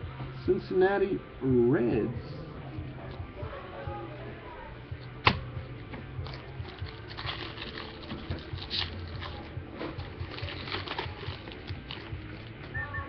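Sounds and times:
foil wrapper crinkling: 6.2 - 12.7.

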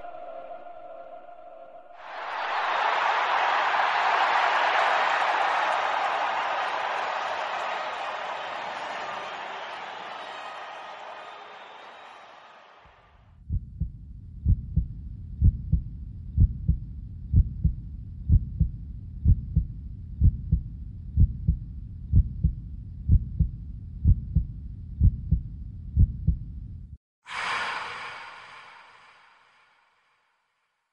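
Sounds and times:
heartbeat thumps: 13.5 - 27.0.

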